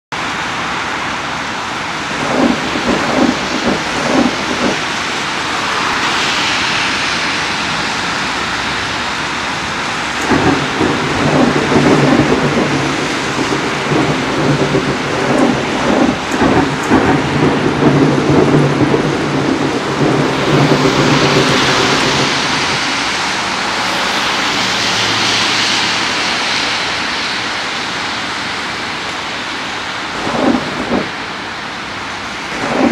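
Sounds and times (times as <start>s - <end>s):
steady rain: 0.1s - 32.9s
thunder rumbling: 1.8s - 7.0s, 9.6s - 24.4s, 30.0s - 32.9s.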